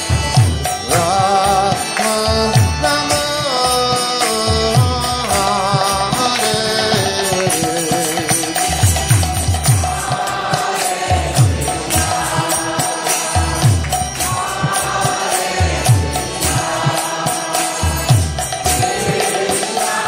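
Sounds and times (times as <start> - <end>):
jingling percussion: 0.0 - 20.0
group chanting in unison: 9.8 - 20.0.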